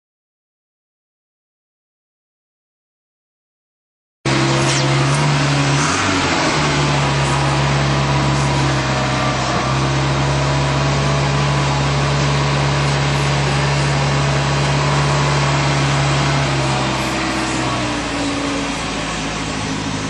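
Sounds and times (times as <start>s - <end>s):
motor humming: 4.3s - 20.0s.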